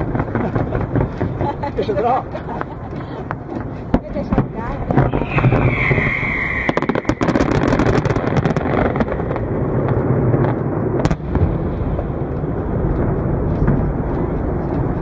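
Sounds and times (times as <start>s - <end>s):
rumble of bursting fireworks: 0.0s - 15.0s
sharp firework crackles: 0.0s - 15.0s
sharp firework bang: 4.3s - 9.4s
firework whistle: 4.8s - 9.3s.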